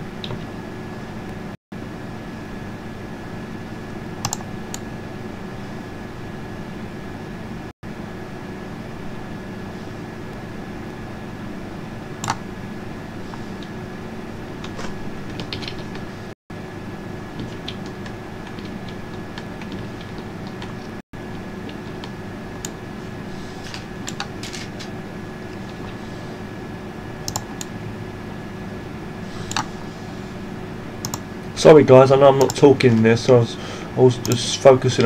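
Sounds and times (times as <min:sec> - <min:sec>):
steady background hum: 0:00.0 - 0:35.0
keyboard and mouse clicks: 0:04.2 - 0:04.8, 0:12.2 - 0:12.4, 0:24.1 - 0:24.9, 0:27.3 - 0:27.7, 0:29.5 - 0:29.7, 0:32.4 - 0:33.0.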